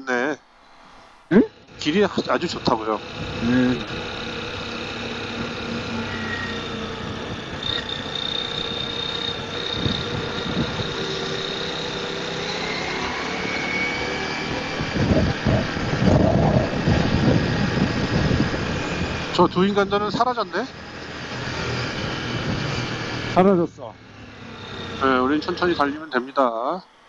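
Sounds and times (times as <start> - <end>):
motorcycle engine accelerating: 1.2 - 27.0
wind buffeting microphone: 9.7 - 11.1, 14.5 - 19.4.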